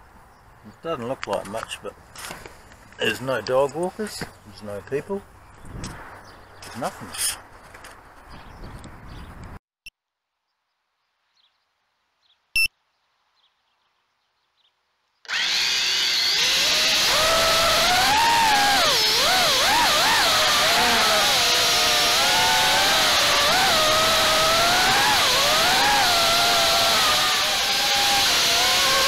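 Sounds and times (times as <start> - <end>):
drone motors whining: 15.3 - 29.0.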